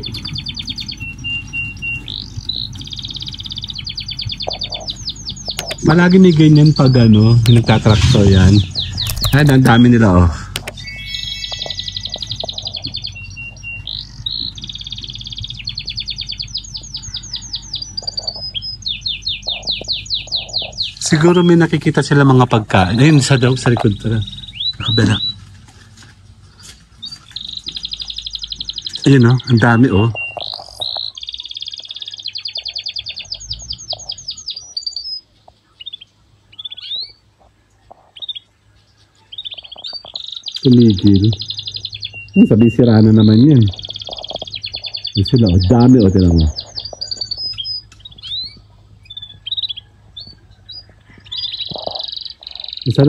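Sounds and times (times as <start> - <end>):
low steady hum: 0.0 - 40.0
songbird singing: 0.0 - 53.0
short bird chirps: 6.6 - 10.0, 10.6 - 21.4, 38.1 - 53.0.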